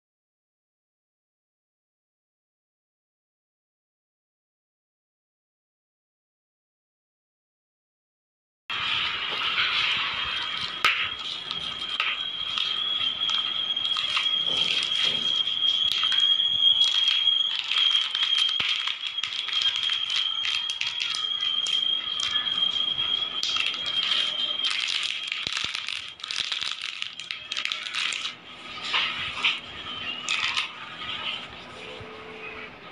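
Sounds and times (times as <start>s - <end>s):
steady high-pitched tone: 8.7s - 32.9s
plastic packaging crinkling: 9.6s - 28.4s, 30.3s - 30.8s.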